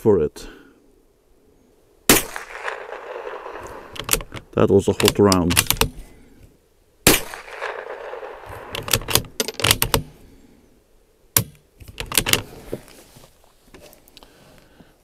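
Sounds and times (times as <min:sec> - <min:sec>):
rifle shot crack: 0:02.1 - 0:04.0, 0:07.0 - 0:10.1
rifle bolt metallic clicks: 0:03.6 - 0:06.0, 0:07.2 - 0:10.1, 0:11.4 - 0:12.5.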